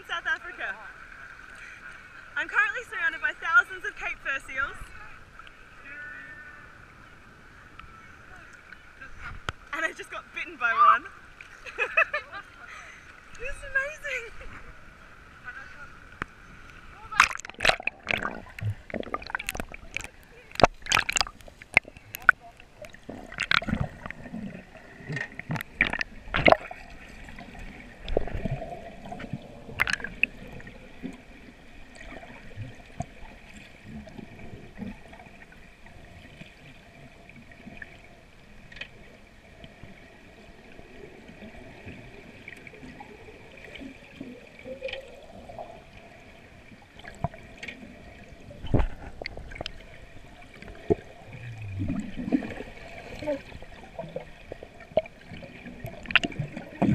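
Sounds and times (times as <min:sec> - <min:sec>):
underwater gurgling and bubbling: 0:17.1 - 0:56.9.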